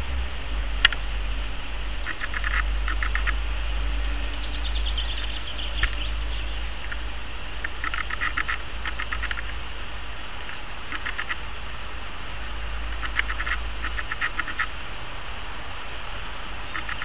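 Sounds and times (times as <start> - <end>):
low steady rumble: 0.0 - 17.0
animal rattling calls: 1.8 - 11.5, 12.8 - 14.8, 16.6 - 17.0.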